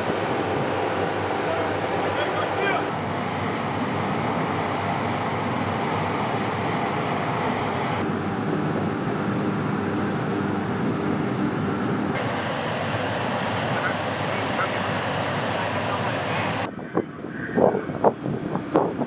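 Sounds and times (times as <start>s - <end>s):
machinery rumble: 0.0s - 18.4s
wind noise: 15.2s - 19.0s.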